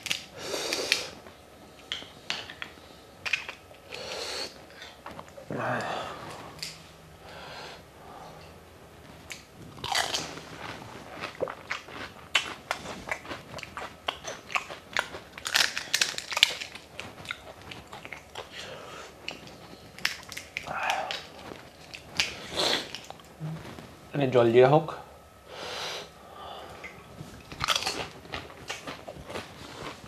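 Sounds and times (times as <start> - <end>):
wet chewing: 9.3 - 23.3, 26.8 - 30.0
crisp shells crunching: 9.7 - 18.3, 27.5 - 30.0.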